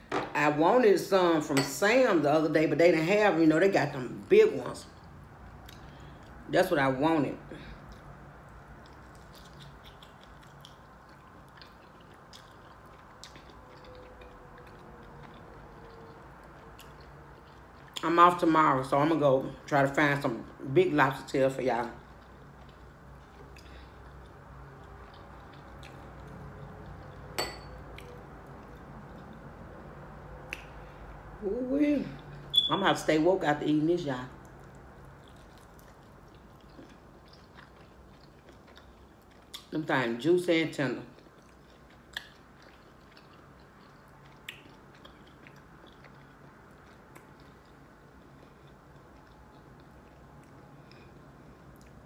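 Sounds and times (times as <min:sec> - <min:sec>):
low room hum: 0:00.0 - 0:52.0
chewing food: 0:04.8 - 0:06.5, 0:07.6 - 0:19.6, 0:20.2 - 0:31.0, 0:34.1 - 0:40.2, 0:41.0 - 0:52.0
clink on glass bowl: 0:27.4 - 0:27.8
soft mouth clicks: 0:30.5 - 0:30.8.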